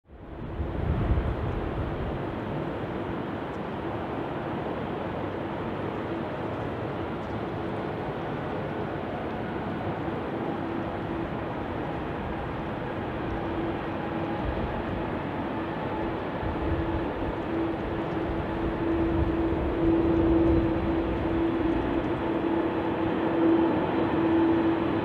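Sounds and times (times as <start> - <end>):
jet engines rumbling: 0.1 - 25.0.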